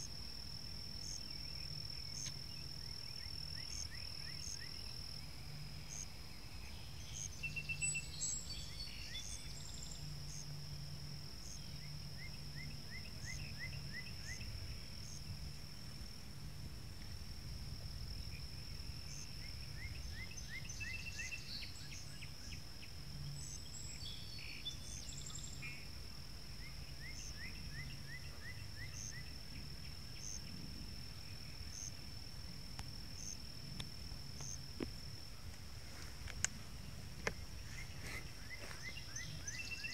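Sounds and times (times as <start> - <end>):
frogs calling: 1.0 - 5.0, 34.4 - 39.9.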